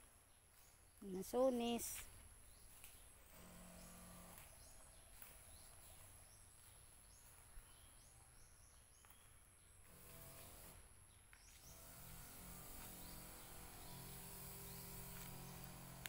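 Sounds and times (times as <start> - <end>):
bird chirps: 0.6 - 9.8.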